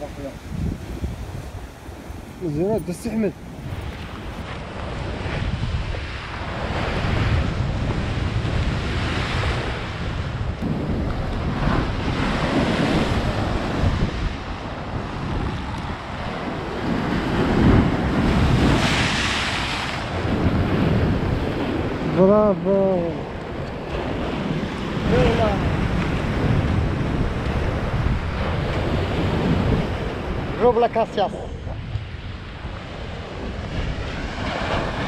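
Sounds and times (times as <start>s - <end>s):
wave crashing and spraying: 0.0s - 35.0s
wind buffeting microphone: 0.0s - 35.0s
surf breaking on rocks: 10.6s - 31.4s.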